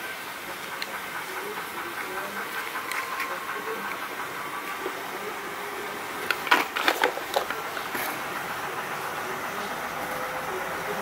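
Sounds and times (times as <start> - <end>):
cardboard boxes crackling and rustling: 6.3 - 8.1.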